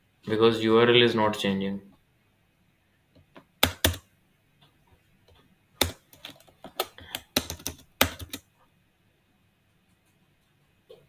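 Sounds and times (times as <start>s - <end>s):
computer keyboard typing: 3.6s - 4.1s, 5.8s - 8.5s.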